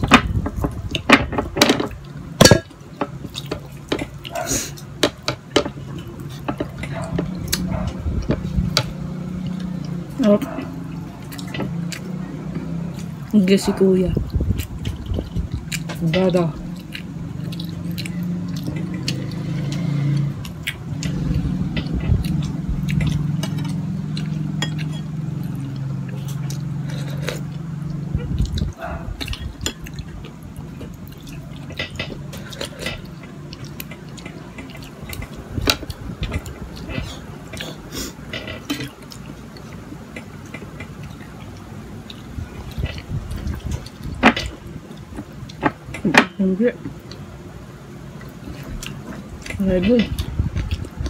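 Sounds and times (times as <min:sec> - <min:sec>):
low steady hum: 0:00.0 - 0:51.0
chewing mouth sounds: 0:05.8 - 0:46.1, 0:48.0 - 0:51.0.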